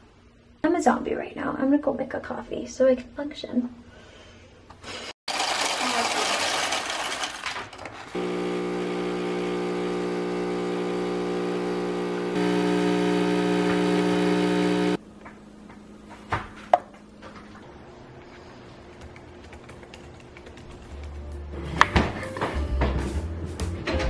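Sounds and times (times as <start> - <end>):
espresso machine humming: 8.1 - 15.8.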